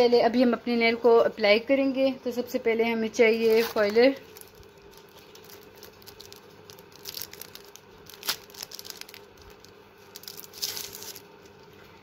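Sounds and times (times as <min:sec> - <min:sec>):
plastic wrapper crinkling: 0:03.3 - 0:11.8.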